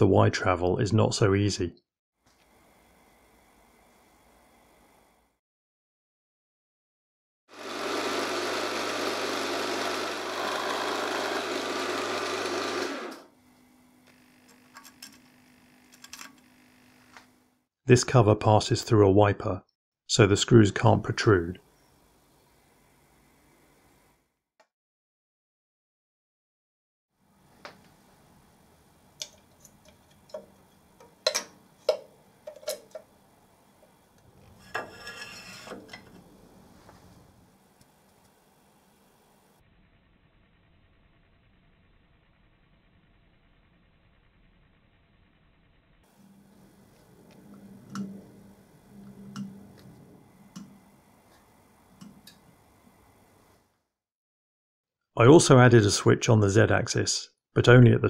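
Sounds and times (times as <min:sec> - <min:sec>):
electric drill drilling: 0:07.5 - 0:13.4
metal scraping rub: 0:34.4 - 0:37.4.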